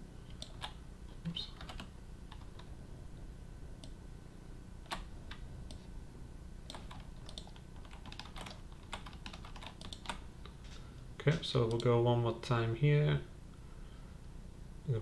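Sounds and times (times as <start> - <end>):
computer keyboard keys clicking: 0.3 - 0.8, 1.6 - 2.7, 6.7 - 10.2.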